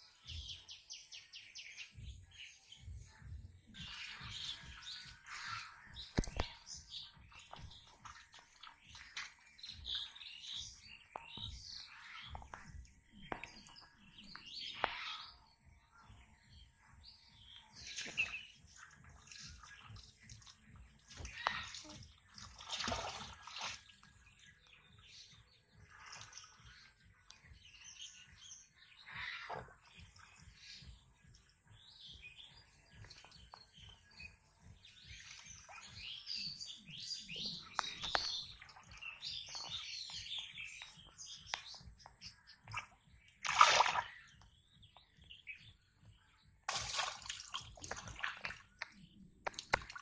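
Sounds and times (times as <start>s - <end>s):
birds chirping: 0.0s - 50.0s
shallow water splashing: 17.8s - 24.4s, 42.6s - 44.4s, 46.7s - 50.0s.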